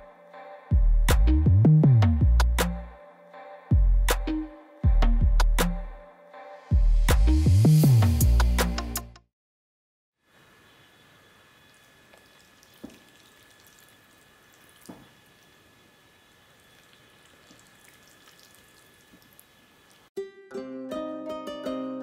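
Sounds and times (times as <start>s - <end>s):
thin high whine: 10.2s - 20.1s
plucked-string music: 20.2s - 22.0s.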